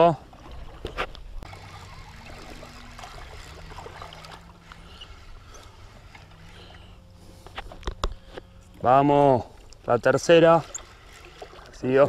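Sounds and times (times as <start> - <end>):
shallow water lapping and sloshing: 0.0 - 12.0.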